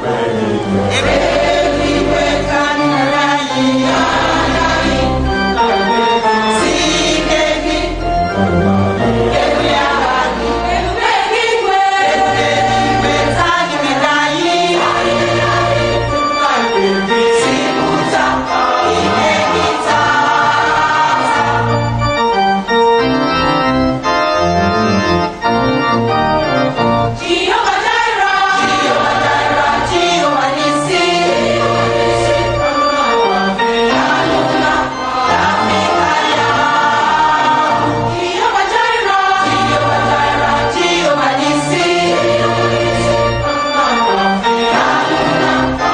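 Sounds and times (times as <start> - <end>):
choir singing: 0.0 - 23.6, 27.2 - 45.9
organ accompaniment: 0.0 - 45.9.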